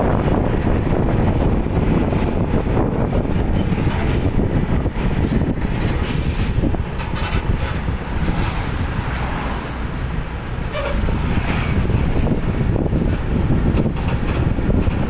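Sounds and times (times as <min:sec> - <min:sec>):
engines and tyres rumbling on road: 0:00.0 - 0:15.0
wind buffeting microphone: 0:00.0 - 0:15.0.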